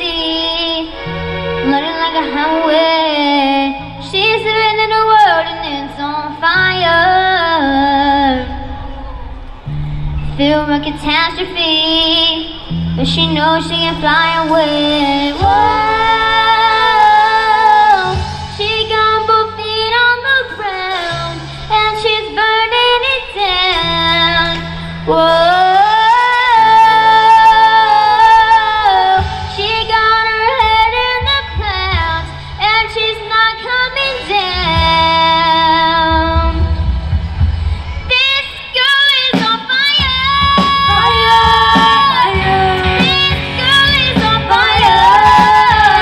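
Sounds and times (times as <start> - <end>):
girl singing into a microphone: 0.0 - 9.1, 10.4 - 36.8, 38.1 - 46.0
sustained bass notes: 0.0 - 38.8, 40.0 - 46.0
live rock band: 12.6 - 22.6, 23.6 - 46.0.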